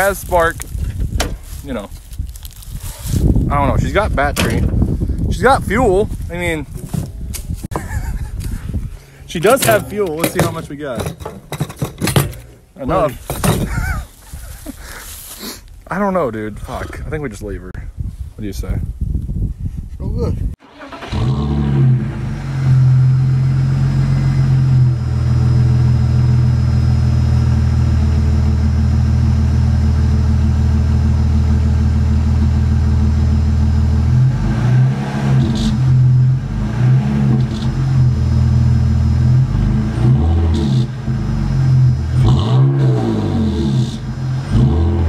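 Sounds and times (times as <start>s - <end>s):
car engine idling and revving: 20.6s - 45.0s.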